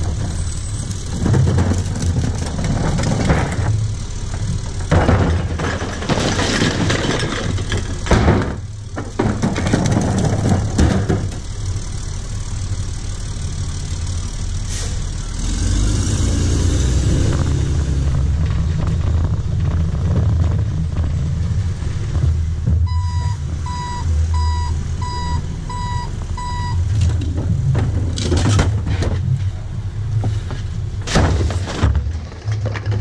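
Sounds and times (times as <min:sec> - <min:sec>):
diesel engine idling: 0:00.0 - 0:31.1
clattering knocks: 0:01.1 - 0:11.5
reversing alarm beeping: 0:22.9 - 0:26.8.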